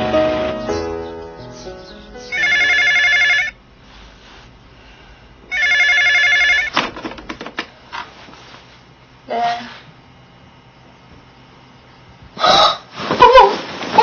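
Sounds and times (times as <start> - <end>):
telephone ringing: 2.3 - 3.6, 5.5 - 6.8.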